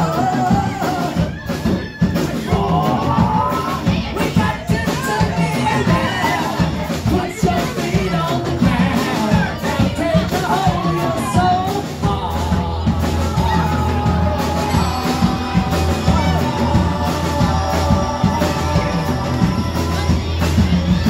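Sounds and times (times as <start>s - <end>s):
live band playing: 0.0s - 21.0s
singer singing: 0.0s - 21.0s
bass low note: 11.0s - 21.0s.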